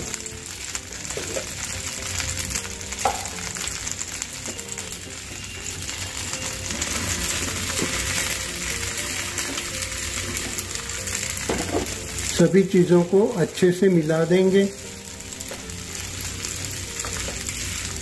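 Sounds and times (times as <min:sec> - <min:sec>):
ghee sizzling in a pan: 0:00.0 - 0:18.0.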